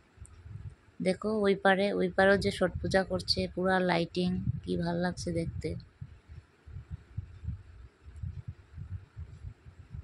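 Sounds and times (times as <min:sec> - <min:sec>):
low thumps on phone microphone: 0:04.3 - 0:10.0.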